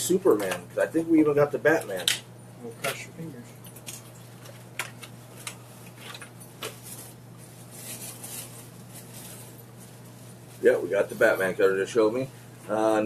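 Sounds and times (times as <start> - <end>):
packet rustling crinkle: 4.3 - 10.8
plastic packet crackling: 7.6 - 9.6.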